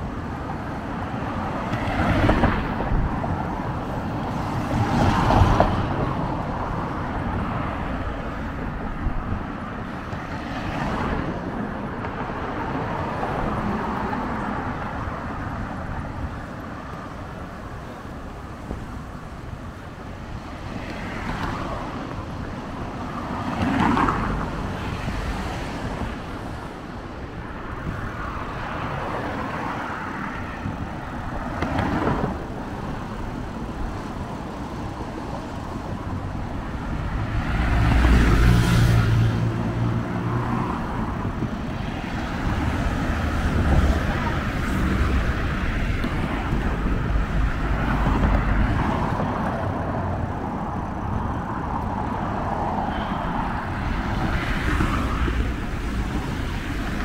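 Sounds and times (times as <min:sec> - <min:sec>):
cars passing: 0:00.0 - 0:57.0.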